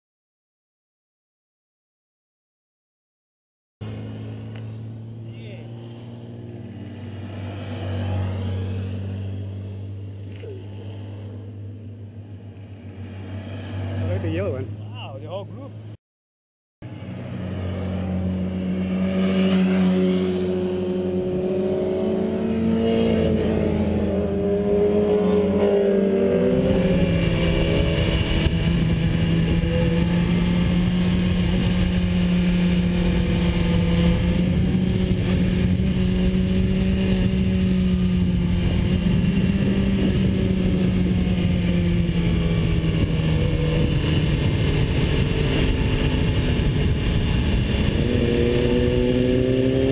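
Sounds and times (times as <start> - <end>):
motorcycle engine running: 3.8 - 14.9, 16.8 - 49.9
wind rushing over microphone: 17.5 - 49.9.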